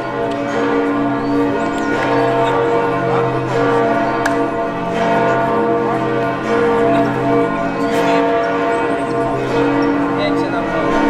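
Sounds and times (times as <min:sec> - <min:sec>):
church bells ringing: 0:00.0 - 0:11.0.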